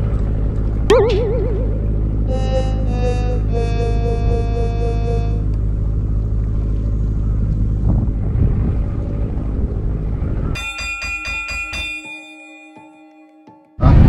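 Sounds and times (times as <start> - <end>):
chiming music jingle: 0.9 - 5.4.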